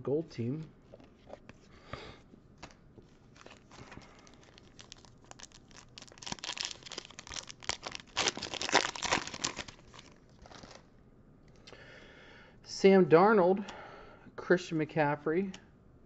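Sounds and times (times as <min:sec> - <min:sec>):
foil wrapper crinkling: 0:03.3 - 0:10.9
foil pack tearing: 0:03.4 - 0:10.8.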